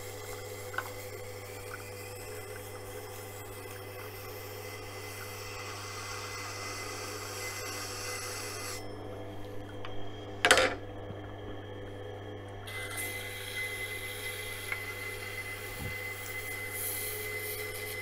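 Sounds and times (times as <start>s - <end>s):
knife scraping on grinding wheel: 0.0s - 9.0s, 12.7s - 18.0s
grinder motor humming: 0.0s - 18.0s.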